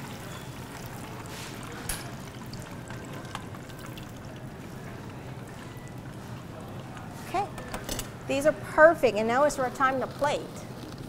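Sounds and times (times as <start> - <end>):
food deep-frying in oil: 0.0 - 8.8.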